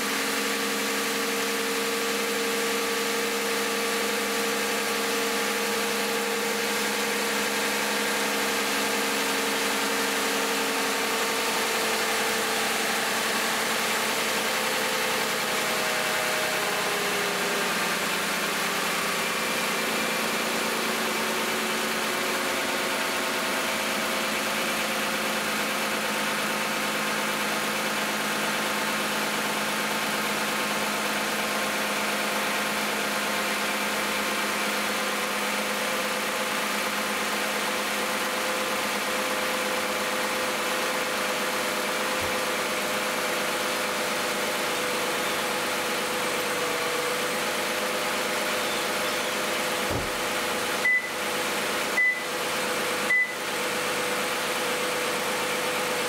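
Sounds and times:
car engine idling: 0:00.0 - 0:56.0
short high beeps: 0:50.8 - 0:51.2, 0:52.0 - 0:52.3, 0:53.1 - 0:53.4.

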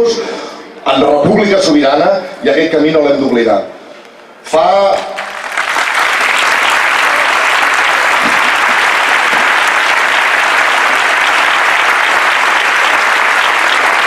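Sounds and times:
crowd applauding: 0:05.1 - 0:14.0.

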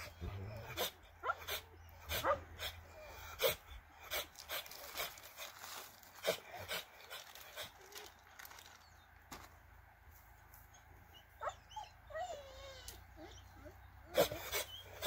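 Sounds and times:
dogs whining and yelping: 0:00.0 - 0:05.0, 0:10.6 - 0:15.0.

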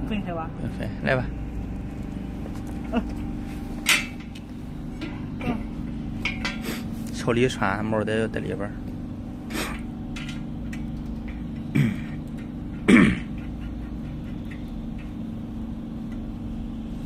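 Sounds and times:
steady low hum: 0:00.0 - 0:17.0
person clearing throat: 0:11.7 - 0:12.2, 0:12.8 - 0:13.4.

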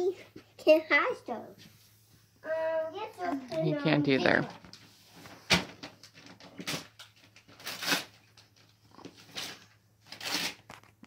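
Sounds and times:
wrapping paper and boxes rustling: 0:04.2 - 0:11.0.

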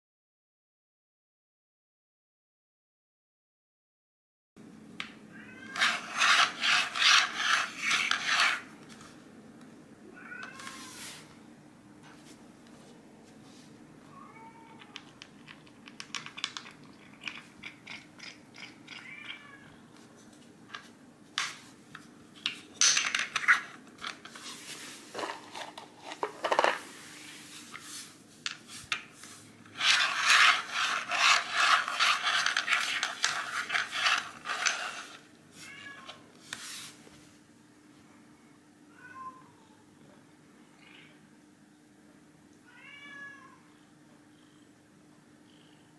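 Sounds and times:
loud scraping rub: 0:05.8 - 0:08.7, 0:29.7 - 0:35.2
cat meowing: 0:10.2 - 0:11.0, 0:14.1 - 0:15.0, 0:38.9 - 0:39.8, 0:42.7 - 0:43.7.

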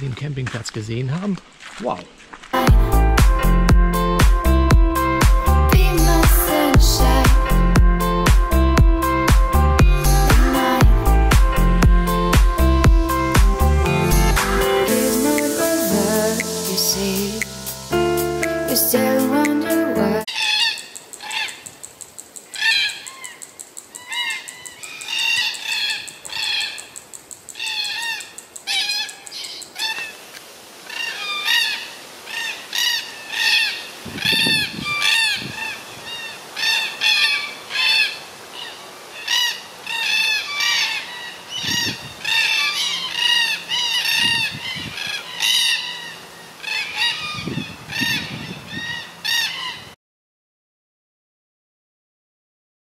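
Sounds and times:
flock of birds calling: 0:22.5 - 0:50.0.

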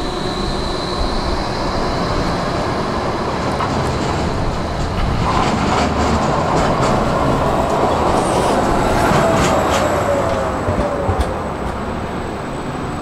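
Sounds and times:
tram motor whine: 0:00.0 - 0:13.0
tram wheels rumbling on rails: 0:00.0 - 0:13.0.

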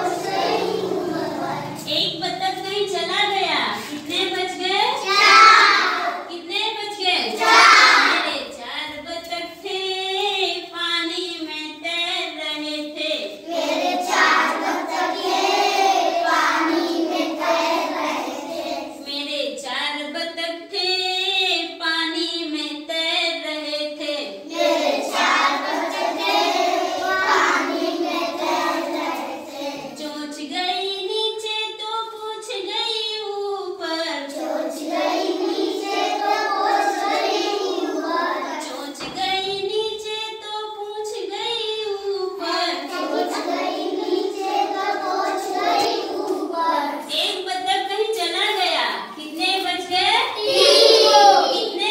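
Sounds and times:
children singing in unison: 0:00.0 - 0:01.8, 0:05.1 - 0:06.3, 0:07.3 - 0:08.2, 0:13.5 - 0:19.0, 0:24.5 - 0:30.0, 0:34.2 - 0:39.1, 0:42.5 - 0:47.0, 0:50.4 - 0:51.8
woman singing: 0:19.1 - 0:24.4, 0:30.0 - 0:34.3.

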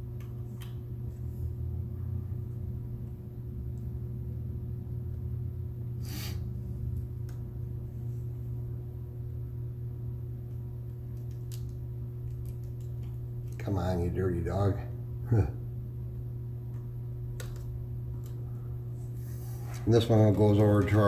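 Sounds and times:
low electrical hum: 0:00.0 - 0:21.0.

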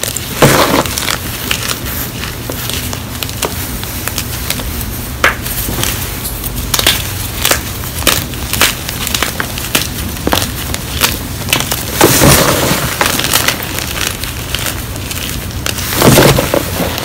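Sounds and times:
chalk blocks crunching by hand: 0:00.0 - 0:17.0.

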